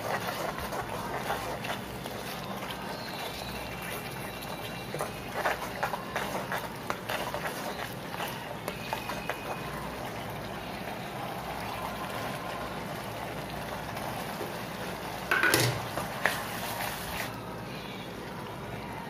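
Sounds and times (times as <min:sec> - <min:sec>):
sauce simmering and sizzling: 0:00.0 - 0:19.0
ladle knocking against pan: 0:15.3 - 0:15.9.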